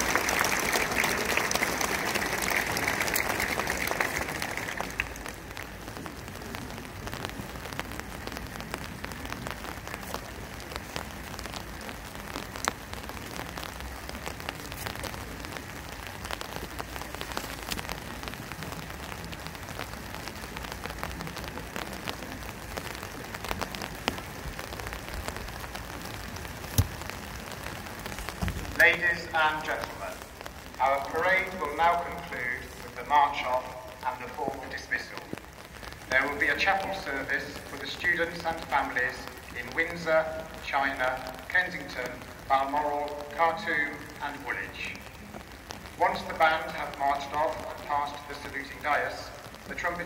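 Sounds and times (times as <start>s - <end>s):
crowd applauding: 0.0s - 6.8s
rain pattering on umbrellas: 0.0s - 50.0s
raindrops tapping umbrella: 0.0s - 50.0s.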